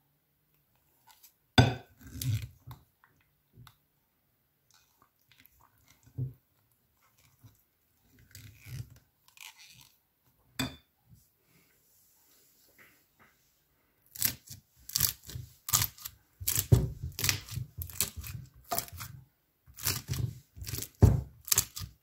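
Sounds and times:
slime squishing and crunching: 14.1s - 19.1s, 19.7s - 22.0s.

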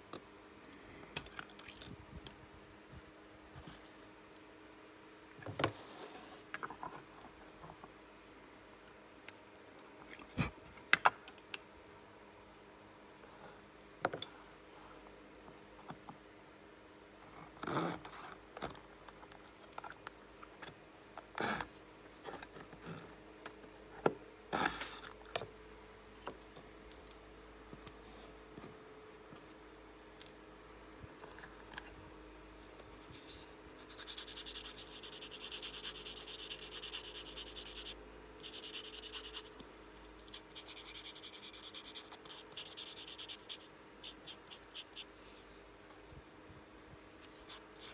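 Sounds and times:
sandpaper rubbing wood: 33.8s - 39.6s.

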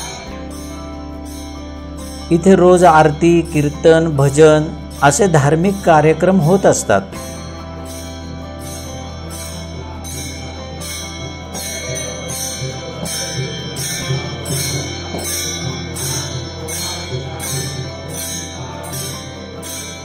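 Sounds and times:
hand cymbals clashing: 0.0s - 20.0s
string drone: 0.0s - 20.0s
men singing: 11.4s - 20.0s.

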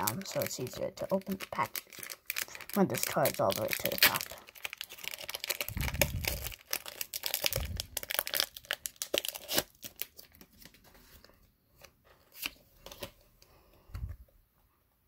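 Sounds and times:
foil wrapper crinkling and tearing: 0.0s - 10.9s.

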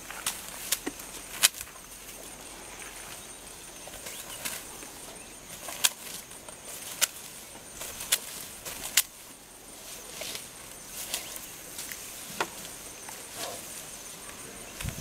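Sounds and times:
grass rustling: 0.0s - 15.0s
stems snapping: 0.2s - 1.7s, 5.6s - 6.2s, 6.8s - 7.2s, 7.8s - 9.2s.

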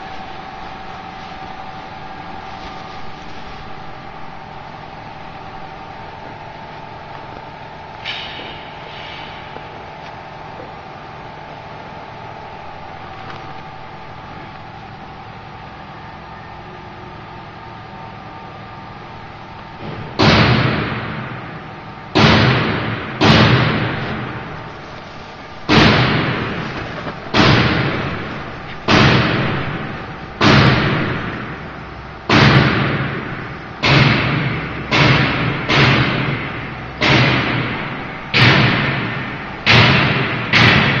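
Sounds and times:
loud sudden thumps: 19.8s - 24.9s, 25.6s - 41.0s.

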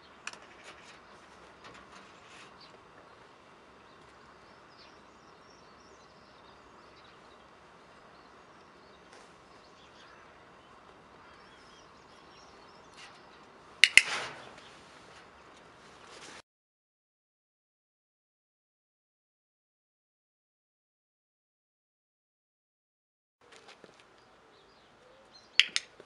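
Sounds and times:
faint outdoor background: 0.0s - 16.4s, 23.4s - 26.0s
training clicker double click: 25.6s - 25.9s.

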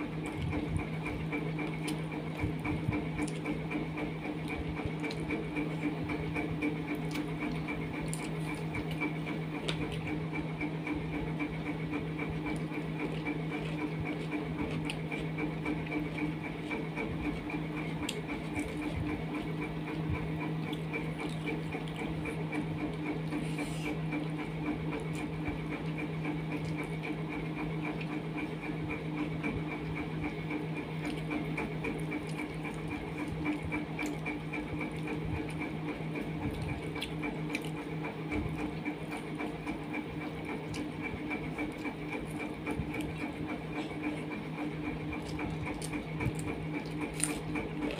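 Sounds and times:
machine hum with whine: 0.0s - 47.9s.

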